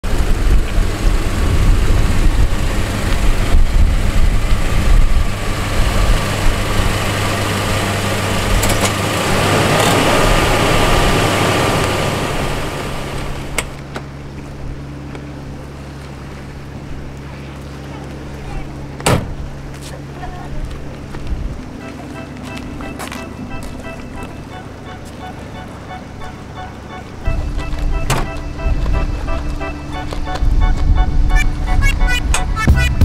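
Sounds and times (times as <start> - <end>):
gusting wind noise: 0.0 - 7.2, 21.2 - 21.8, 27.2 - 33.0
car engine idling: 0.0 - 33.0.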